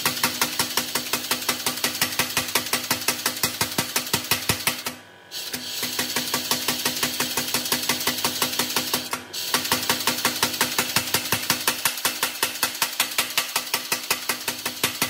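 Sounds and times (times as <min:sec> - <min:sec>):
power hammer pounding steel: 0:05.9 - 0:15.0.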